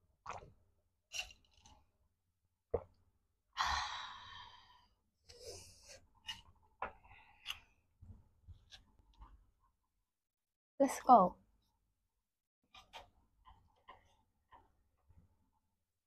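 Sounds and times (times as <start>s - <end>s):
woman gulping water: 0.2s - 0.6s.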